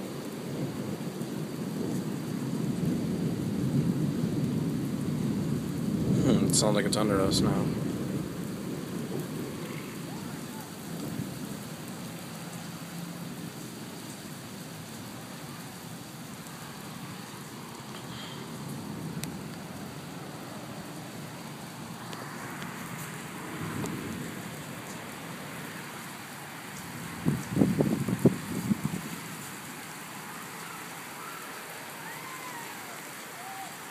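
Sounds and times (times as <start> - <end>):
rain on wet pavement: 0.0 - 33.9
rolling thunder: 0.4 - 12.4, 18.5 - 25.7, 26.9 - 29.4.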